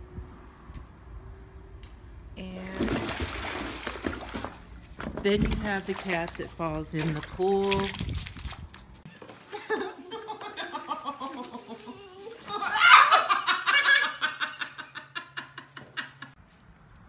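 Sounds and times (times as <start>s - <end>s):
person laughing: 9.5s - 16.3s.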